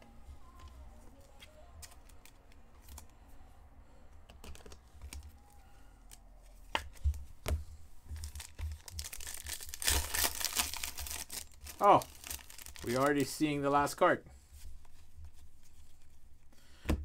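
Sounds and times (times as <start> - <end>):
cards clicking and rustling: 4.2 - 5.4, 8.2 - 13.4
wrapper crinkling and tearing: 8.2 - 13.4.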